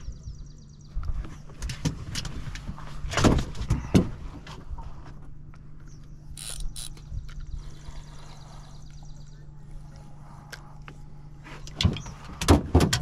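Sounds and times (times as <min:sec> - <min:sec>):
steady low hum: 0:00.0 - 0:13.0
fishing reel clicking and whirring: 0:06.3 - 0:07.4
thumps in a boat: 0:11.8 - 0:13.0.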